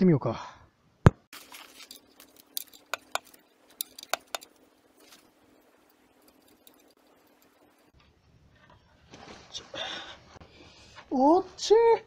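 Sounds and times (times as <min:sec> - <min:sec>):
sharp metallic clicks: 0:02.5 - 0:04.5.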